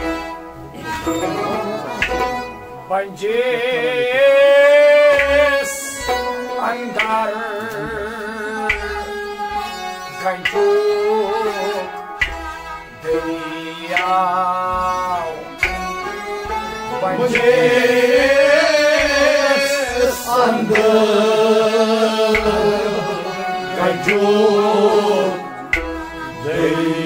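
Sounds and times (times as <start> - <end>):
bowed string instrument: 0.0 - 27.0
plucked lute: 0.0 - 27.0
man singing: 1.0 - 12.0, 13.0 - 15.6, 16.8 - 27.0
sharp percussive strokes: 11.8 - 27.0.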